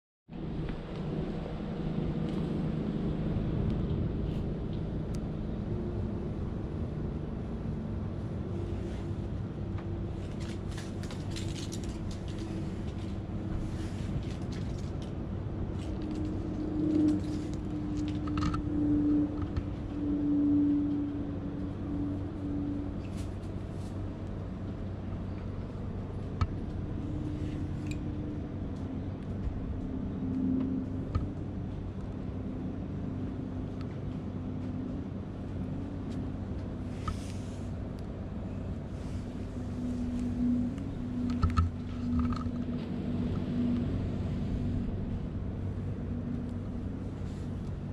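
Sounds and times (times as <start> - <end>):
low engine drone: 0.3 - 47.9.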